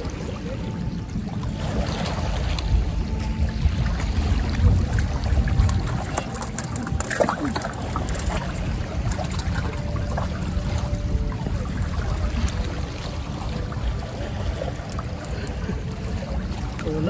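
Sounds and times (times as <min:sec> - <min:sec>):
water on rocky shore: 0:00.0 - 0:17.0
wind: 0:00.0 - 0:17.0
fishing tackle clicks and knocks: 0:05.4 - 0:09.8.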